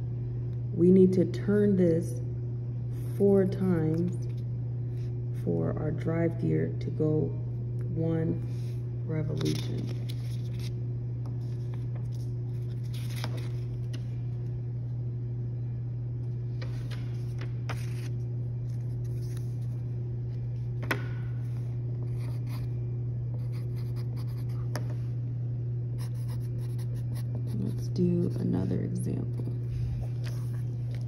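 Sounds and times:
steady low hum: 0:00.0 - 0:31.0
paper rustling: 0:09.3 - 0:10.8, 0:11.4 - 0:14.2, 0:16.6 - 0:19.8
pencil scratching on paper: 0:23.4 - 0:24.7, 0:26.0 - 0:28.7.

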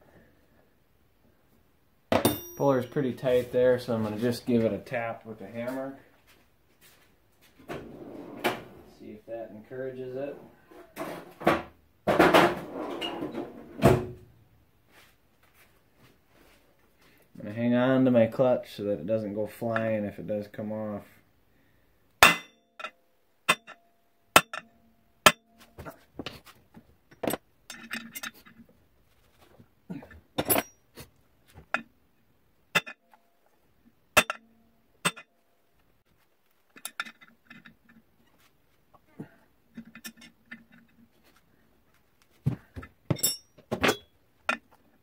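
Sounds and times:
hammer clinking on metal: 0:02.1 - 0:03.0, 0:22.2 - 0:22.9, 0:23.5 - 0:23.8, 0:34.2 - 0:34.4, 0:43.1 - 0:44.1.

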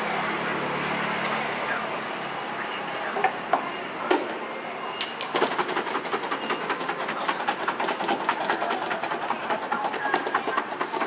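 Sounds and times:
food rattling in metal bowl: 0:05.4 - 0:11.0.

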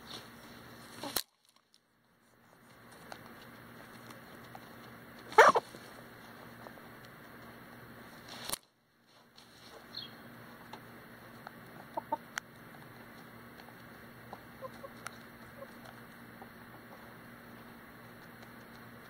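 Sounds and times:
chickens clucking: 0:00.0 - 0:01.2, 0:02.9 - 0:07.7, 0:09.6 - 0:19.0
beaks pecking the ground: 0:00.0 - 0:19.0
loud scuffing near microphone: 0:09.1 - 0:09.9.

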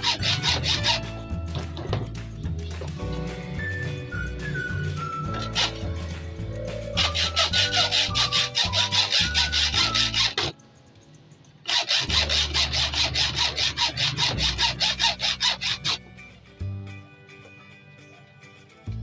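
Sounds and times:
rhythmic rubbing or scraping strokes: 0:00.0 - 0:03.5, 0:04.4 - 0:10.6, 0:11.6 - 0:16.1.

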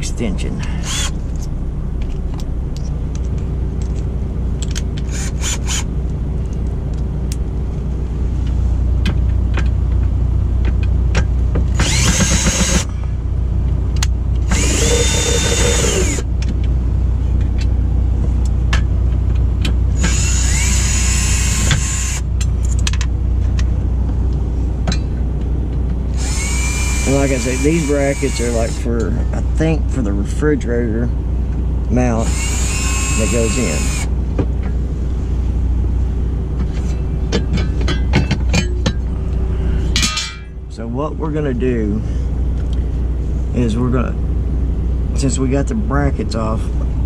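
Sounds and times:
low rumble: 0:00.0 - 0:27.6, 0:33.8 - 0:47.0
cordless drill motor whine: 0:00.8 - 0:01.2, 0:05.1 - 0:05.9, 0:11.7 - 0:12.9, 0:14.4 - 0:16.3, 0:19.9 - 0:22.3, 0:26.1 - 0:28.8, 0:32.2 - 0:34.1.

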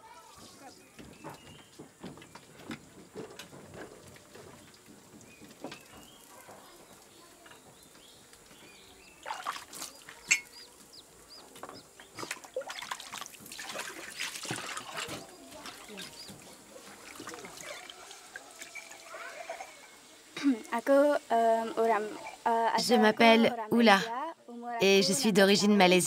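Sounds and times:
water sloshing and trickling: 0:00.2 - 0:23.0
dish clink: 0:10.2 - 0:10.6
dishes clattering: 0:10.2 - 0:10.7.

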